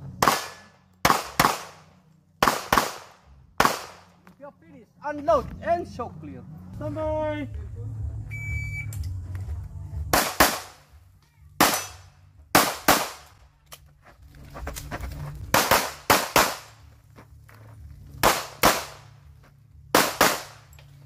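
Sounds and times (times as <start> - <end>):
pistol shots: 0.2 - 4.1, 10.1 - 10.9, 11.6 - 13.3, 15.5 - 16.8, 18.2 - 19.1, 19.9 - 20.7.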